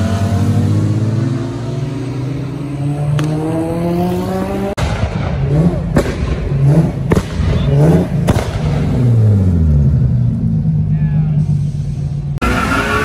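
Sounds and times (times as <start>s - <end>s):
car engine revving: 0.0s - 13.0s
sharp cracks: 4.8s - 9.1s.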